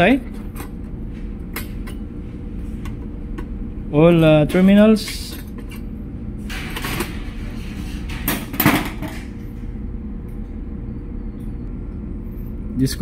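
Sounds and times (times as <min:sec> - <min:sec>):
steady low hum: 0:00.0 - 0:13.0
hot plate rattling and scraping: 0:06.5 - 0:09.4.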